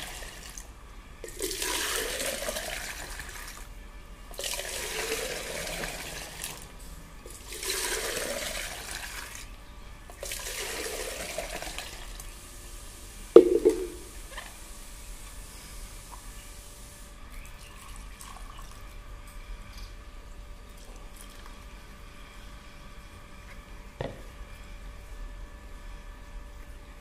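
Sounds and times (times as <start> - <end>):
juice pouring and splashing: 0.0 - 3.7, 4.3 - 6.7, 7.3 - 9.5, 10.1 - 12.3, 20.7 - 21.7
jug set down knock: 13.4 - 14.1.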